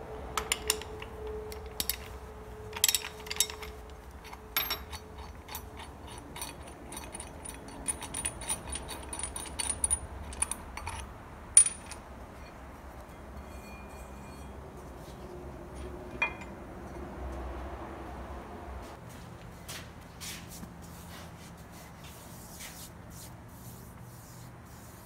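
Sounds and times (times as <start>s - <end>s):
metal clinks and knocks: 0.3s - 14.7s, 15.7s - 17.1s.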